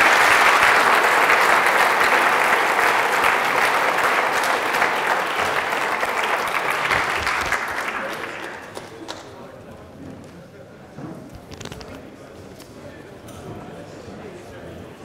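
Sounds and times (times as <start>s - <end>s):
audience applauding: 0.0s - 9.3s.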